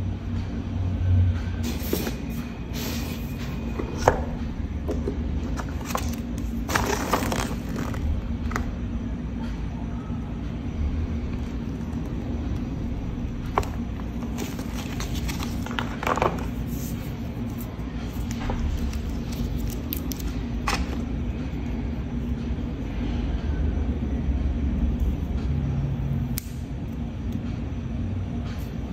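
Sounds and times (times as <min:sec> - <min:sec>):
faint hum: 0:00.0 - 0:28.9
packaging handling rustles and clicks: 0:04.9 - 0:08.7, 0:13.5 - 0:21.1.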